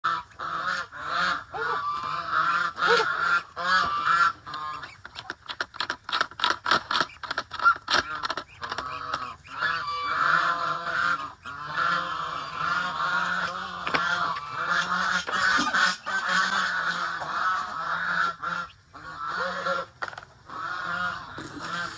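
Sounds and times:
geese honking: 0.0s - 21.9s.

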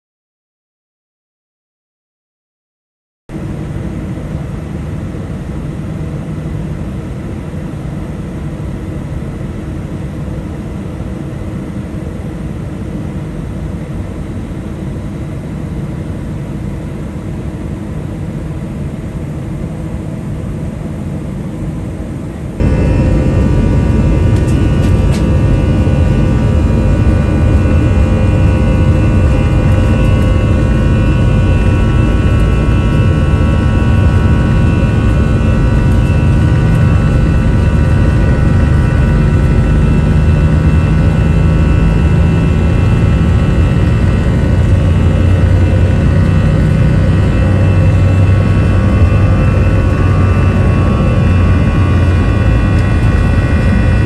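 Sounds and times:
jet engines roaring: 3.3s - 54.0s
deep rumble: 21.9s - 54.0s
whining engine tones: 22.2s - 54.0s.

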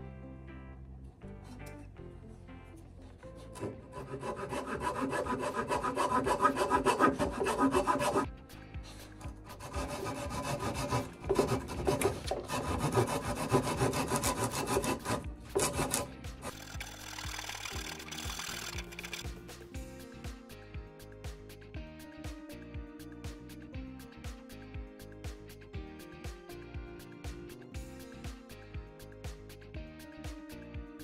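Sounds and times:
hand tool cutting wood: 3.2s - 8.3s, 9.1s - 19.2s.

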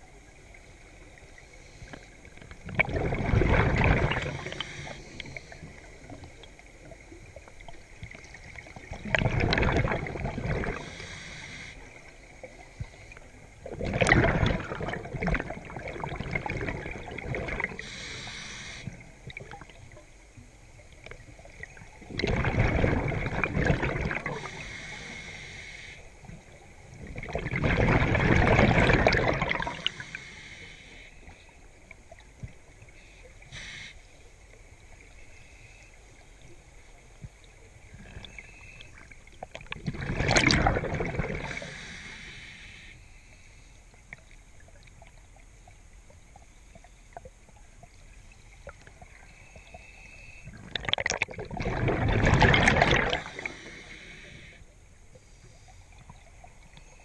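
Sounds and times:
underwater bubbles rushing: 0.0s - 25.3s, 26.2s - 30.4s, 36.4s - 42.2s, 50.4s - 54.5s
regulator inhale hiss: 4.3s - 5.8s, 10.7s - 12.0s, 17.8s - 19.0s, 24.3s - 26.1s, 29.7s - 31.5s, 33.5s - 34.2s, 41.4s - 44.0s, 53.1s - 56.0s.

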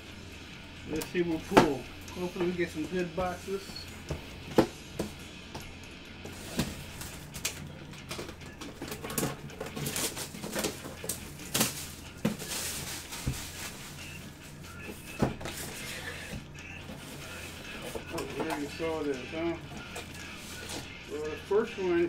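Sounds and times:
plastic wrap tearing and crinkling: 8.8s - 14.2s.

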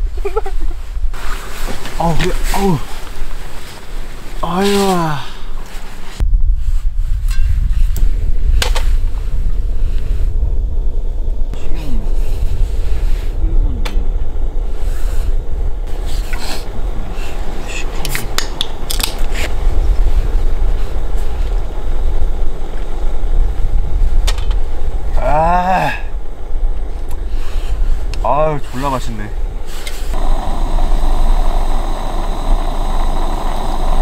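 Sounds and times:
steady low rumble: 0.0s - 34.0s
person grunting: 4.4s - 5.5s.

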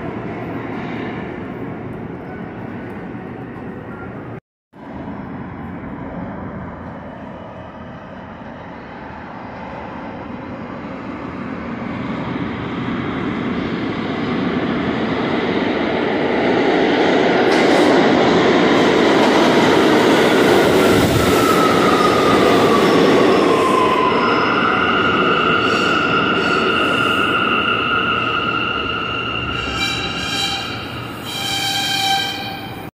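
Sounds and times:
train rumble and wheel noise: 0.0s - 32.9s
train braking whine: 20.6s - 32.9s.

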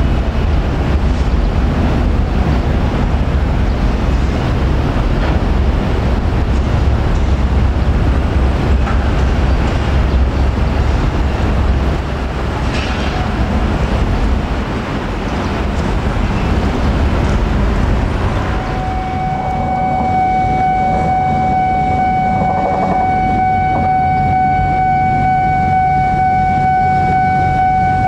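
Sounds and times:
electric train rumbling: 0.0s - 28.0s
steady high tone: 17.9s - 28.0s.

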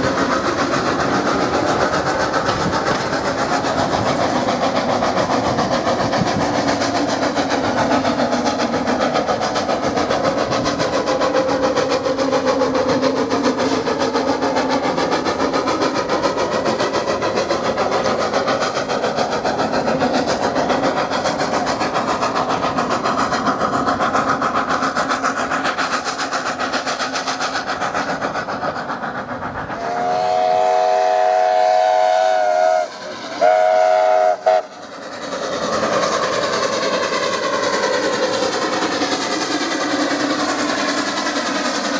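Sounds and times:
steam locomotive running: 0.0s - 41.9s
steam whistle chord: 29.8s - 34.7s.

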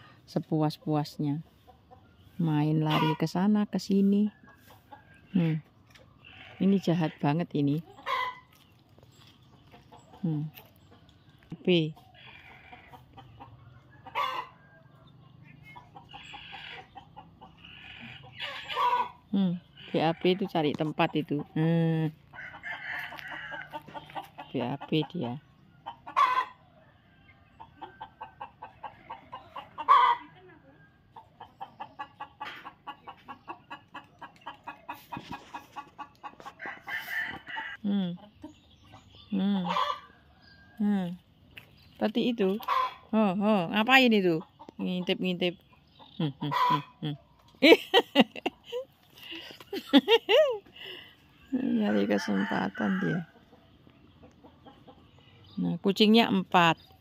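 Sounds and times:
chickens clucking: 0.0s - 57.0s
loud chicken squawk: 14.0s - 14.6s, 17.5s - 19.2s, 26.0s - 26.6s, 28.4s - 30.4s, 46.5s - 47.0s
rooster crowing: 36.7s - 37.7s, 51.6s - 53.2s.

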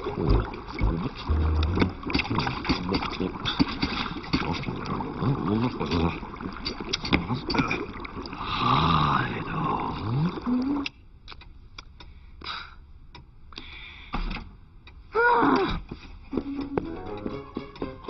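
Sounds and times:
faint clicks: 10.8s - 12.5s.

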